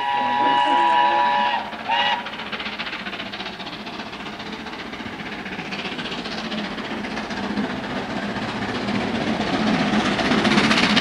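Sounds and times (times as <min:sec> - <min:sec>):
steam locomotive whistle: 0:00.0 - 0:02.4
steam engine hissing rush: 0:00.0 - 0:11.0.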